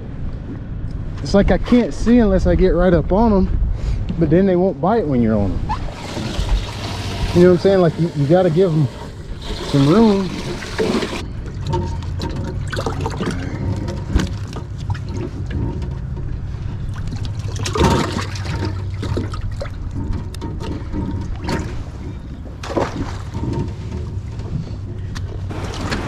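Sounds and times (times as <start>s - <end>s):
steady low hum: 0.0s - 26.0s
water splashing and trickling: 5.7s - 26.0s.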